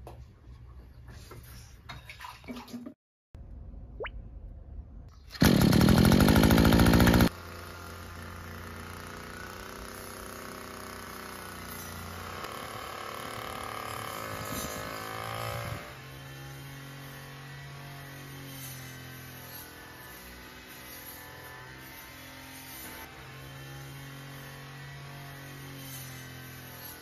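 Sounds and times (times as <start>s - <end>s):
brush cutter engine revving: 5.3s - 7.6s, 8.3s - 16.0s.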